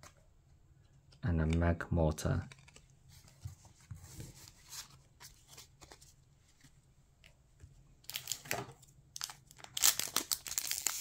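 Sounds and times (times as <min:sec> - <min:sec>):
trading cards tapping and rustling: 0:01.5 - 0:06.0
foil pack crinkling: 0:09.2 - 0:11.0.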